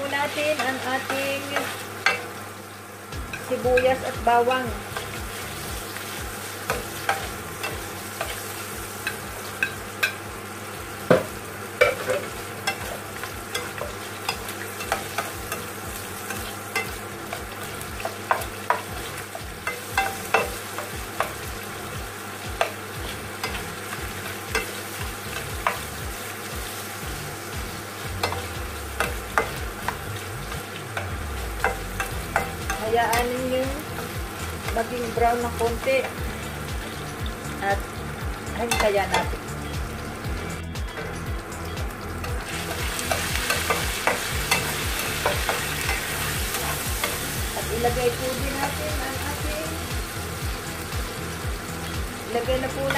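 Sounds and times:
food sizzling in oil: 0:00.0 - 0:52.9
spatula scraping and tapping pan: 0:16.3 - 0:21.4.

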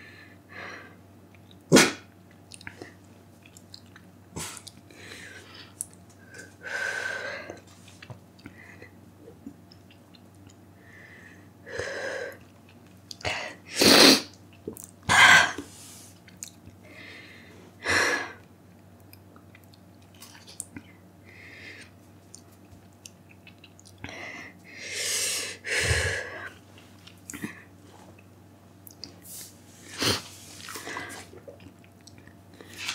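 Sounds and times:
person breathing hard: 0:04.9 - 0:07.6, 0:10.8 - 0:12.4, 0:16.8 - 0:18.4, 0:21.2 - 0:21.9, 0:24.0 - 0:26.6.

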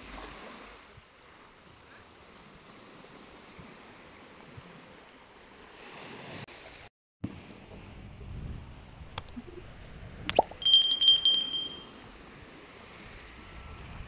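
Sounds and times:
sharp click: 0:09.2 - 0:09.4.

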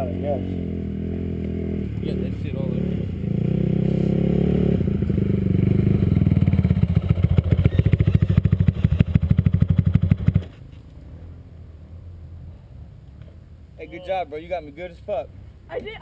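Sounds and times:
dirt bike engine idling: 0:04.8 - 0:10.4.

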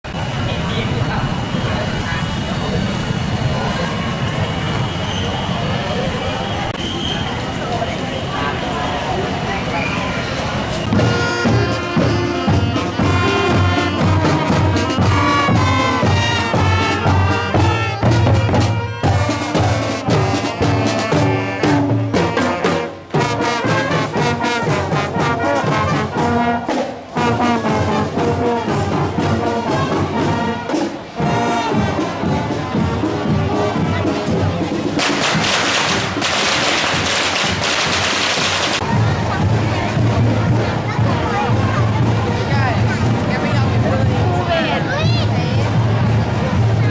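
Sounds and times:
brass band playing a tune: 0:10.6 - 0:46.9.

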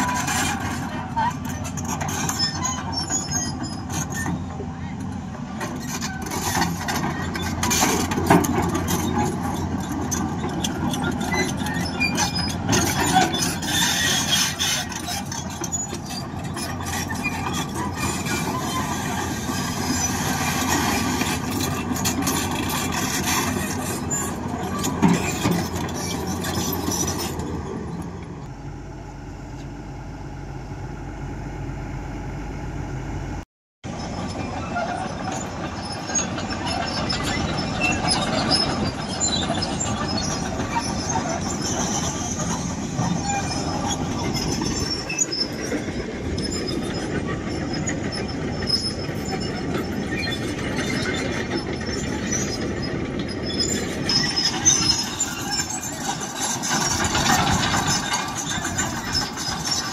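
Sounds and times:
heavy machinery engines running: 0:00.0 - 0:59.9.

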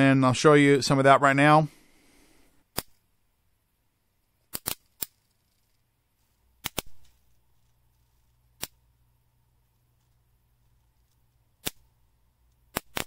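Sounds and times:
bug zapper cracks: 0:04.5 - 0:05.4, 0:06.6 - 0:07.2, 0:12.7 - 0:13.0.

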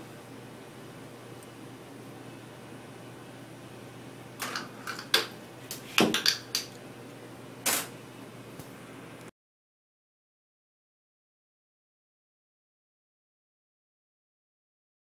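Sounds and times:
low equipment hum: 0:00.0 - 0:09.3.

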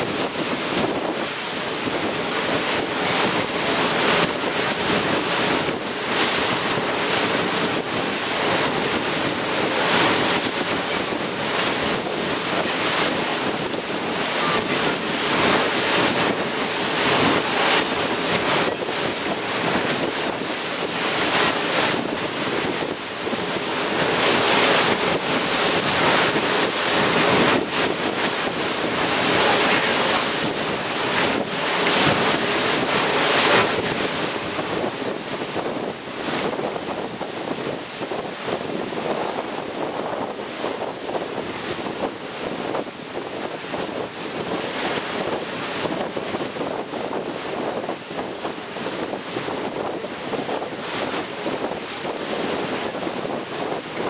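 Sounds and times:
water spray rushing along hull: 0:00.0 - 0:54.0
wind buffeting microphone: 0:00.0 - 0:54.0.

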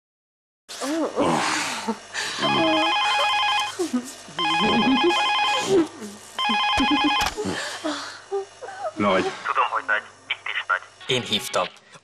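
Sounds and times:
telephone ringing: 0:02.4 - 0:03.8, 0:04.4 - 0:05.8, 0:06.4 - 0:07.4.

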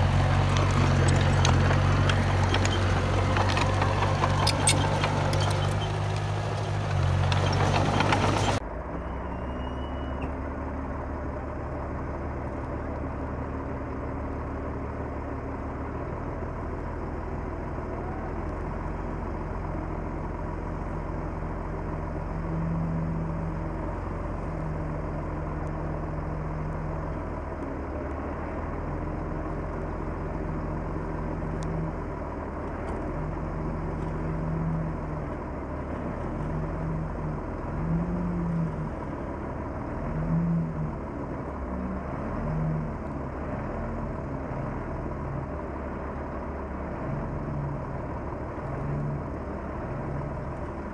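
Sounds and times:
bulldozer diesel engine running: 0:00.0 - 0:50.9.

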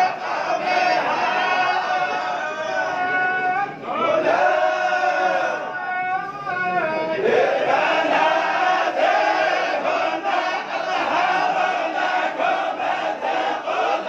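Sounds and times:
men chanting in unison: 0:06.9 - 0:14.0.

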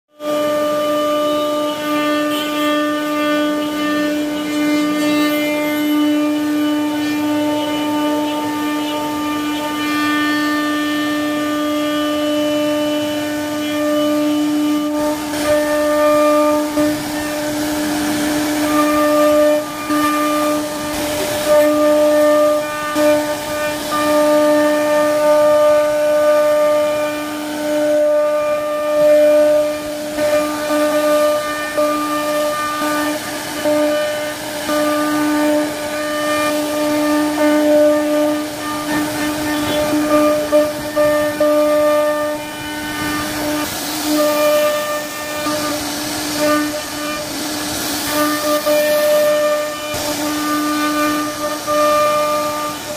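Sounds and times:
router spindle whining: 0:00.2 - 0:52.9
rough wood cutting noise: 0:34.5 - 0:52.6.

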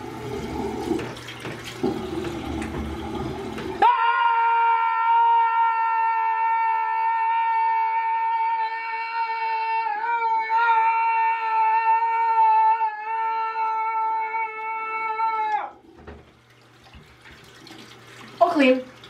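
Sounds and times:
man screaming: 0:03.8 - 0:15.8.

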